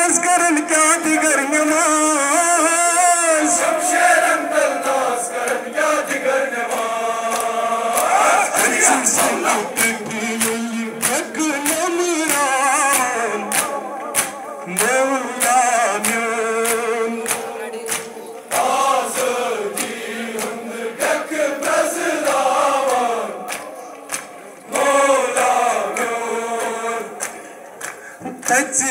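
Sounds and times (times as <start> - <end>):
men chanting in chorus: 1.8 - 28.9
chest-beating slaps: 7.3 - 20.6.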